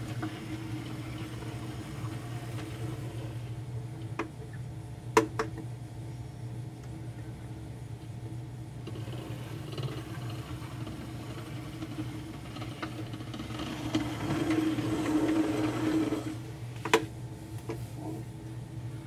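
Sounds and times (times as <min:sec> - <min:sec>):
model train motor whir: 0:08.8 - 0:16.4.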